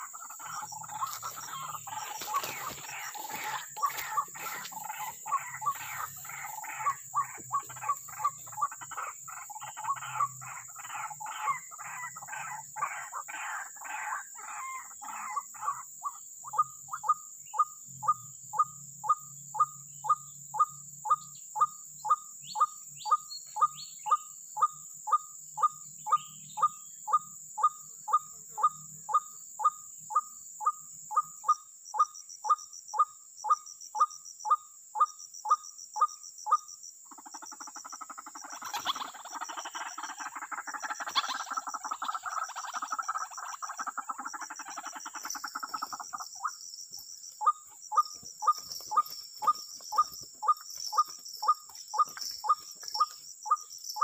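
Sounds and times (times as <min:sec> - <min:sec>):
waterhen calling: 0:00.0 - 0:12.5, 0:38.4 - 0:46.6.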